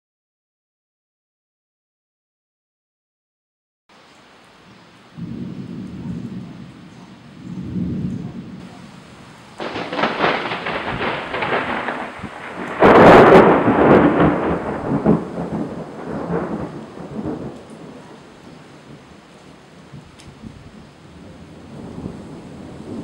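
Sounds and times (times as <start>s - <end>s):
rolling thunder: 5.1s - 23.0s
thunder crack: 5.2s - 19.2s, 19.8s - 23.0s.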